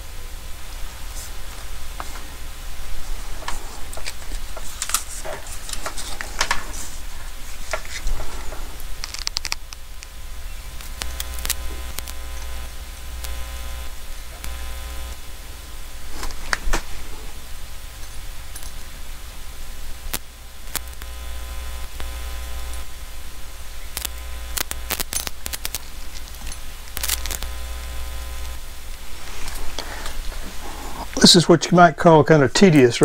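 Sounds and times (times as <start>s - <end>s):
low electrical hum: 0.0s - 33.0s
soldering clicks and taps: 9.0s - 10.1s, 10.8s - 15.2s, 20.1s - 22.9s, 24.0s - 25.8s, 26.9s - 28.6s.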